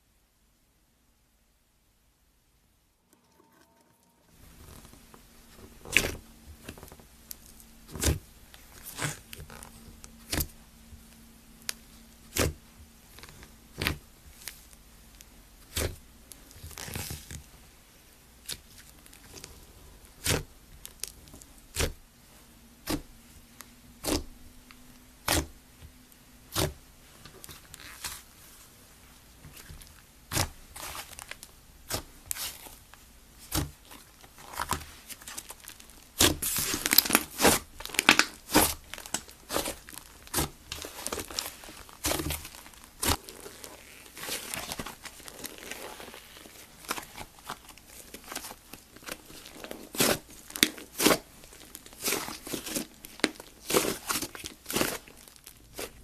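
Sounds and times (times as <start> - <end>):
slime crackling and tearing: 4.5 - 10.6, 11.6 - 14.8, 15.6 - 17.5, 18.4 - 22.0, 24.0 - 24.3, 25.2 - 25.6, 29.5 - 56.0.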